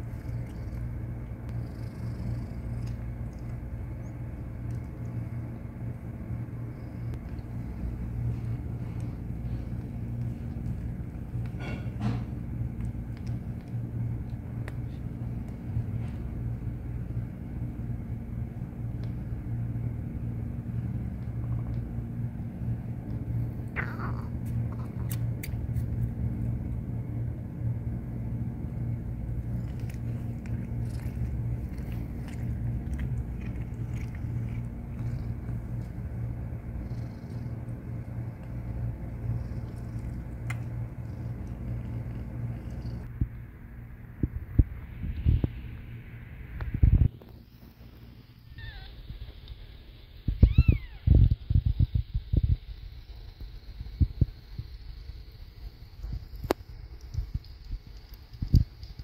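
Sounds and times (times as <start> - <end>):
cat purring: 0.0 - 5.9, 29.3 - 43.1
faint small clicks: 12.8 - 14.8, 56.3 - 59.0
kitten mewing: 23.7 - 25.3, 50.4 - 51.1.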